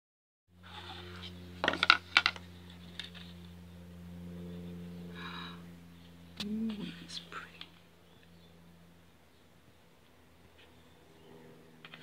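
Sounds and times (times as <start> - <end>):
steady low hum: 0.5 - 12.0.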